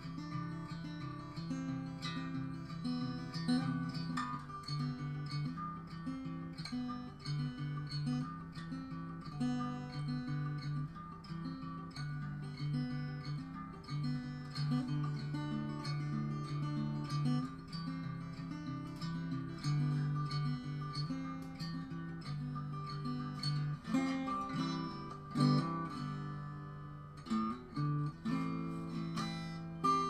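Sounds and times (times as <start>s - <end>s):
acoustic guitar strummed: 0.0s - 30.0s.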